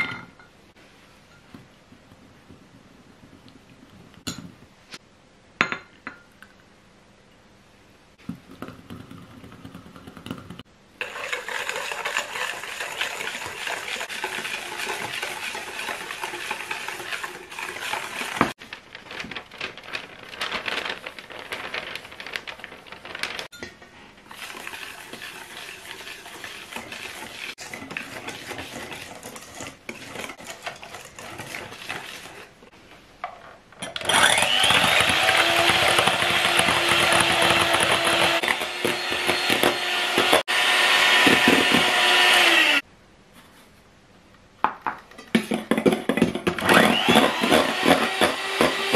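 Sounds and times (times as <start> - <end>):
glassware clinks: 0.0 - 0.6
whisk beating in metal bowl: 8.5 - 18.6, 24.3 - 32.6, 34.4 - 40.4.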